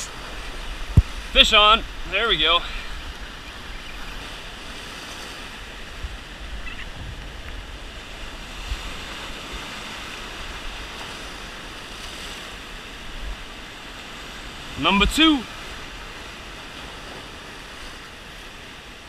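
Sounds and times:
wind thumps on microphone: 0.0 - 4.4, 5.4 - 9.6
surf breaking over rocks: 0.0 - 18.8.

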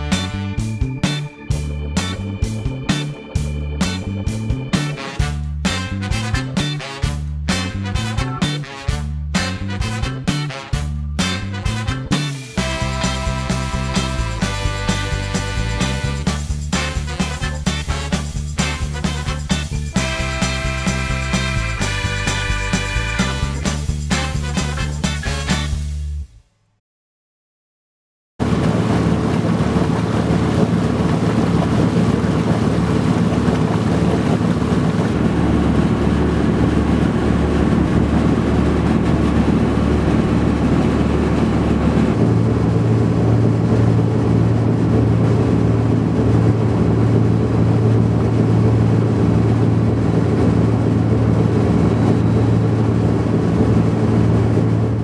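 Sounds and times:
boat engine humming: 0.0 - 25.9, 28.4 - 55.0
wind noise on microphone: 28.4 - 55.0.

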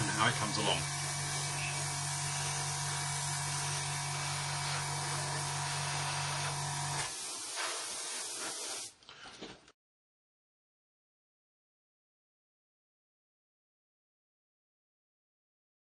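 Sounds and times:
airbrush hissing: 0.0 - 9.0.

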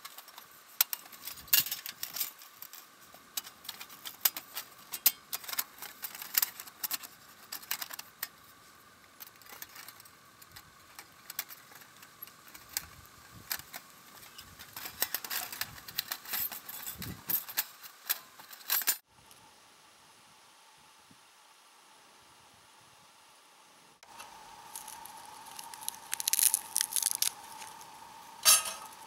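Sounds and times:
metal panels clinking: 28.4 - 29.0.

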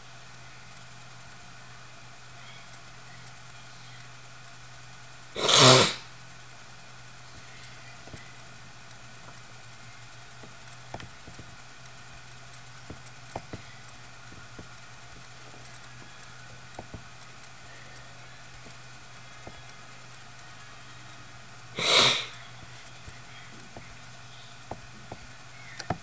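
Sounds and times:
low hum and hiss: 0.0 - 26.0
computer mouse clicks: 10.4 - 18.8, 24.6 - 26.0.

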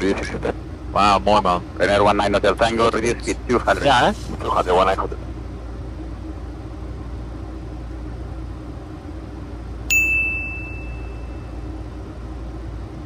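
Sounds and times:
cockpit airflow and engine drone: 0.0 - 13.0
bell ding: 9.9 - 11.5.

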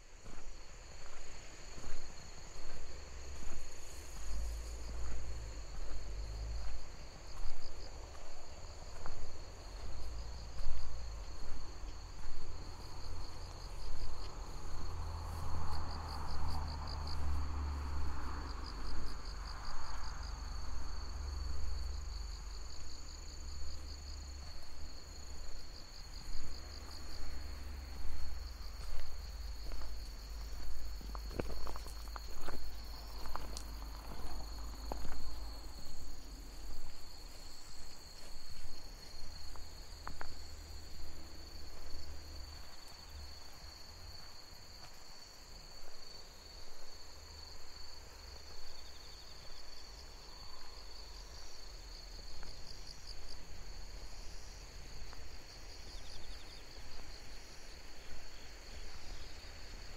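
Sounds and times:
crickets and insects trilling: 0.0 - 59.9
footsteps walking: 0.2 - 15.7, 24.4 - 45.3.

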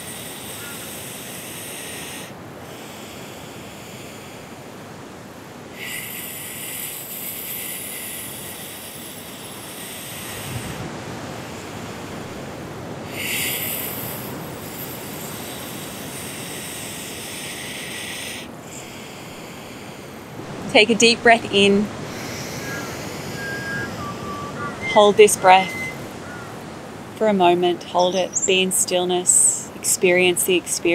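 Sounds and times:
exhale through nose: 0.0 - 4.6, 5.8 - 10.8, 13.1 - 20.3, 21.9 - 24.2
hissing inhales: 0.0 - 4.7, 5.8 - 12.2, 13.1 - 20.4, 21.6 - 25.0
steady background hiss: 0.0 - 30.9.

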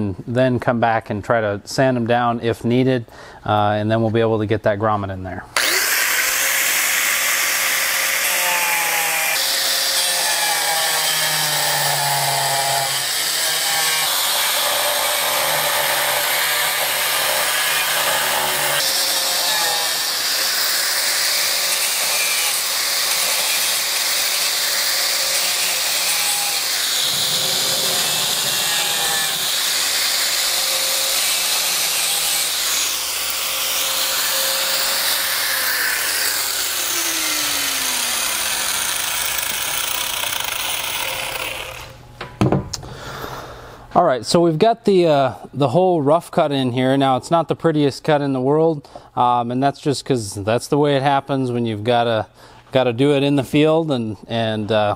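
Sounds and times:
angle grinder cutting plastic: 5.6 - 42.0.

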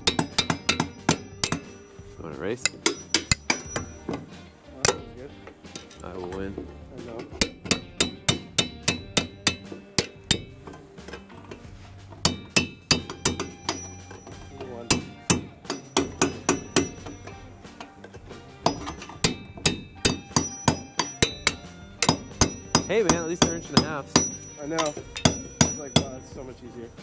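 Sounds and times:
nails driven into wood: 7.2 - 14.3, 14.9 - 17.4.

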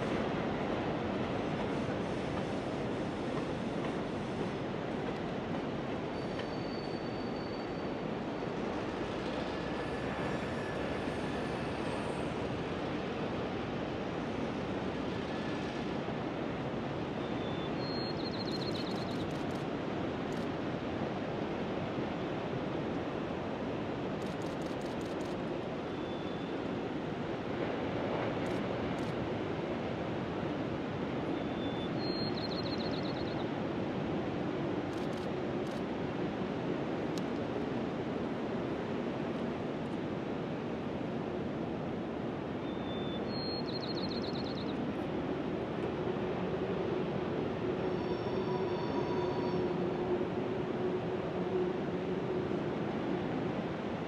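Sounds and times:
faint diesel freight train rolling: 0.0 - 54.0
wind: 0.0 - 54.0
ocean surf: 18.6 - 42.7.

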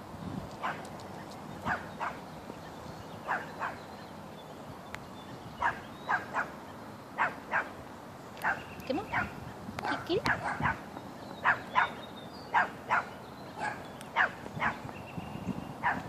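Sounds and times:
puppy yapping: 3.3 - 3.8, 5.6 - 6.5, 7.2 - 7.7, 8.4 - 10.8, 11.4 - 14.8.

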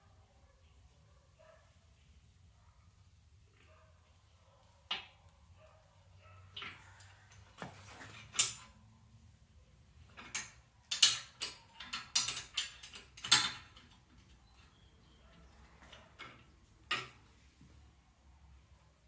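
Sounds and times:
metal clicks and clinks: 6.6 - 8.8, 10.0 - 17.2.

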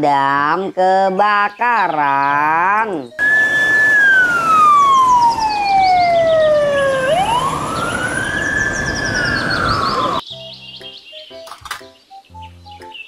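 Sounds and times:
fire engine siren wailing: 3.2 - 10.2
truck engine and road noise: 3.2 - 10.2.

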